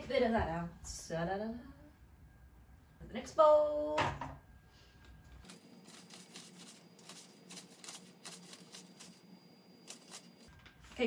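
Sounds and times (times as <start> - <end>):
plastic bag crinkling: 5.4 - 9.2
spoon scraping powder: 5.4 - 10.5.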